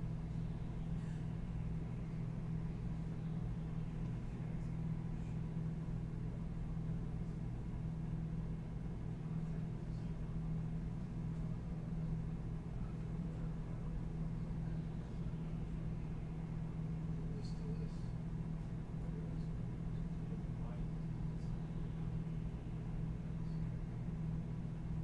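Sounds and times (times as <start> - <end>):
low room hum: 0.0 - 25.0.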